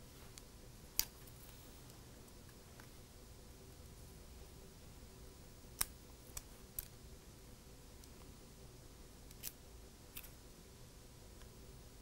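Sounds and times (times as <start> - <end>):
small sharp plastic clicks: 9.3 - 10.4.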